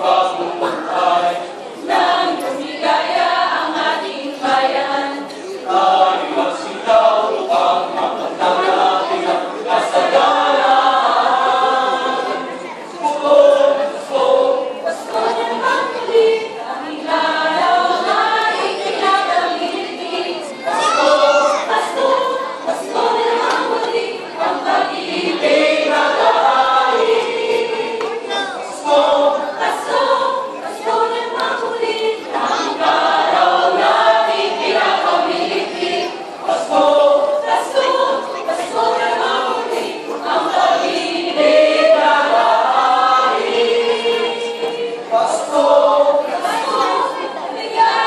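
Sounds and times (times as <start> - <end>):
mixed choir singing: 0.0 - 48.0.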